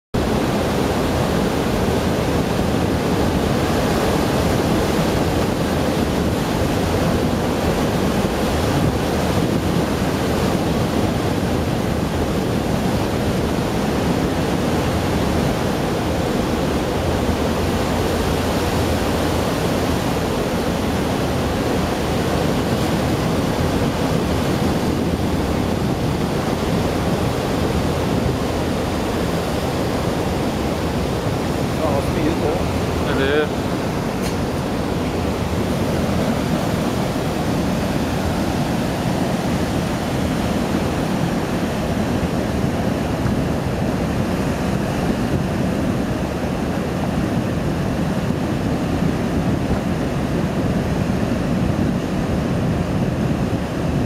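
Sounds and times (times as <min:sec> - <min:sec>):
ship thrusters churning water: 0:00.2 - 0:54.0.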